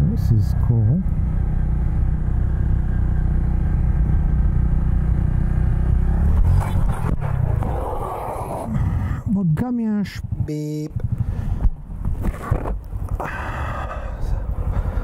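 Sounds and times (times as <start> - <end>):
motorcycle engine running: 0.0 - 7.7.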